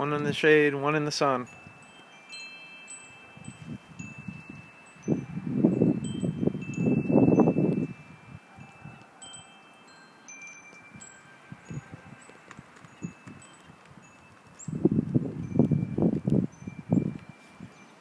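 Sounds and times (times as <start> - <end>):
chimes ringing: 1.2 - 18.0.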